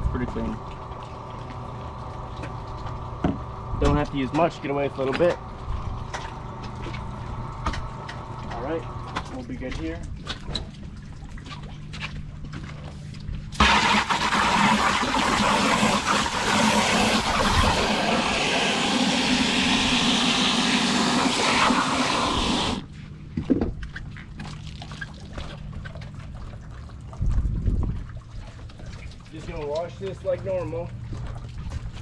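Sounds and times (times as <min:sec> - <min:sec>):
water rushing from hose nozzle: 0:13.6 - 0:22.9.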